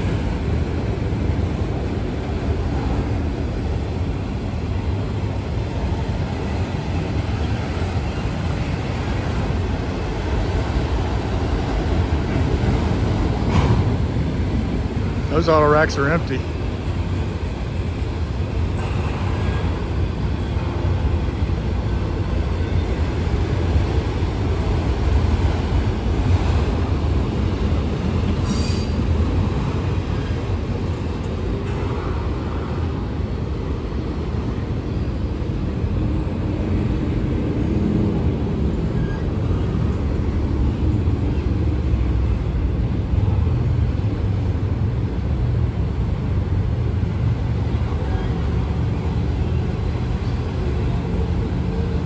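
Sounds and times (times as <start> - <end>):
freight train wheels rumbling: 0.0 - 52.0.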